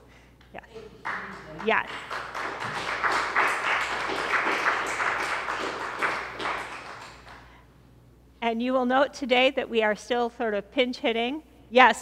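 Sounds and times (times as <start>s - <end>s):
congregation applauding: 0.8s - 7.5s.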